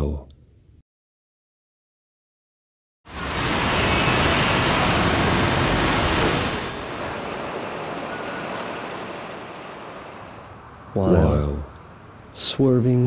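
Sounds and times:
street traffic noise: 3.1s - 13.0s.

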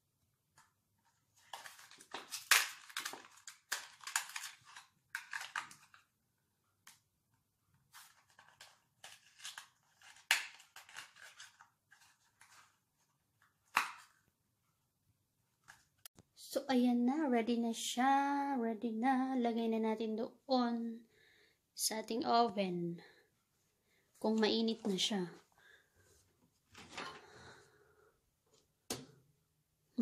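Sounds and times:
packet crinkling and rustling: 1.3s - 6.1s, 7.9s - 14.2s.

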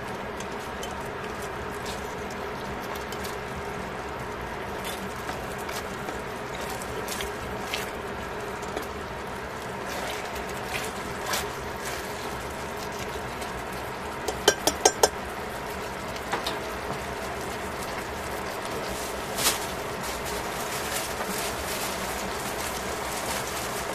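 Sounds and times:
tongs clicking against pan: 14.3s - 15.2s.

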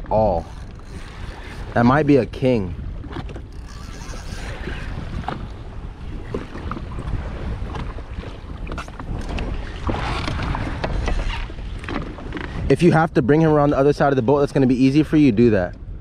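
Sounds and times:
water sloshing against hull: 0.0s - 16.0s
wind buffeting microphone: 0.0s - 16.0s.

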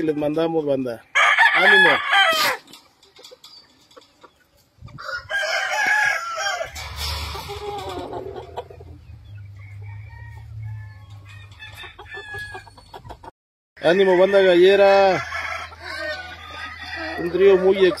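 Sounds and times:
hens clucking: 0.0s - 18.0s
rooster crowing: 1.2s - 2.6s, 5.0s - 6.8s, 9.6s - 12.7s, 14.0s - 17.9s.

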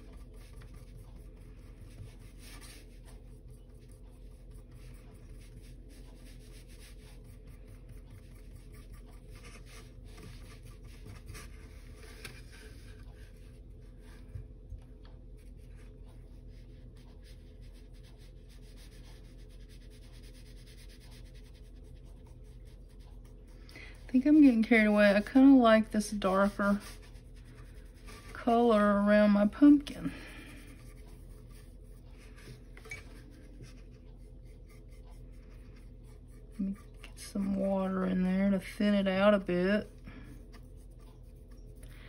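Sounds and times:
paintbrush scratchy strokes: 0.0s - 42.0s
steady low hum: 0.0s - 42.0s.

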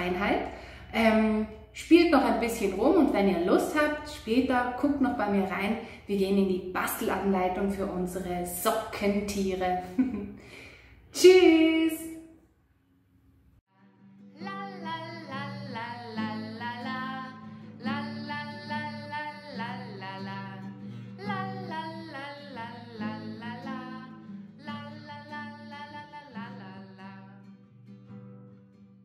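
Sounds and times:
person singing: 13.7s - 27.6s
plucked acoustic guitar: 13.8s - 29.0s.

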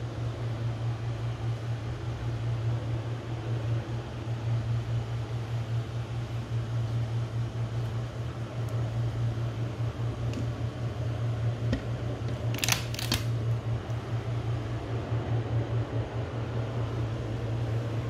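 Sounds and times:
steady low appliance hum: 0.0s - 18.0s.

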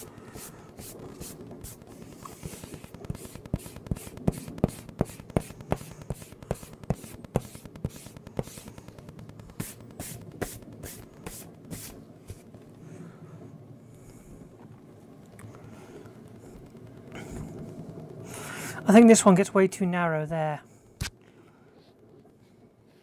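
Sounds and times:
eraser rubbing on paper: 0.0s - 8.9s, 9.5s - 12.4s.

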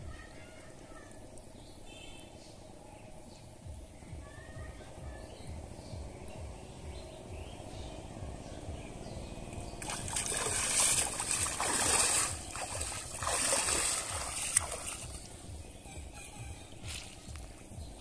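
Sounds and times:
water splashing and sloshing: 9.4s - 15.6s.

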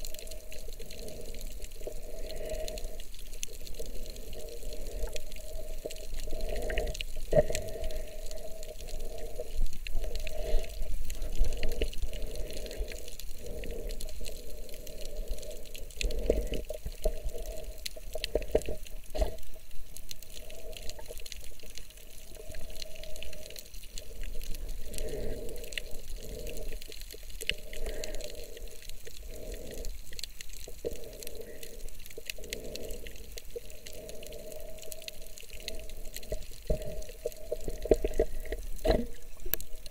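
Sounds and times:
underwater water sloshing: 35.7s - 39.9s.

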